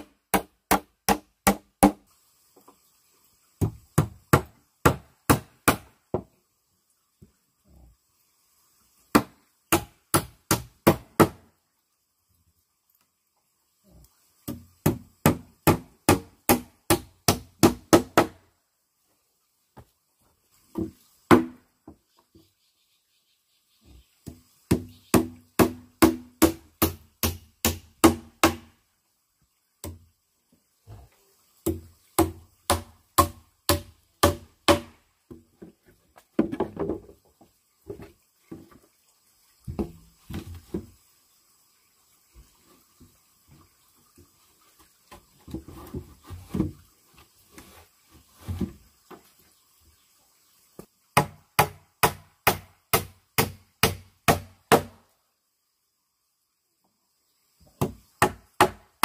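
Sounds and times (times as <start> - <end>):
tool striking wood: 31.6 - 35.0, 51.2 - 55.0.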